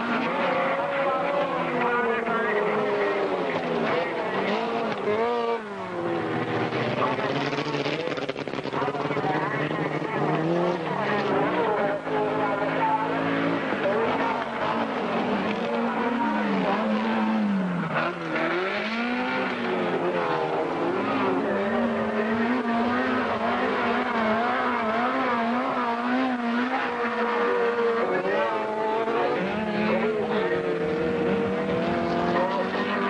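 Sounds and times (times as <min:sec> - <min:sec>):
race car engines revving: 0:00.0 - 0:33.0.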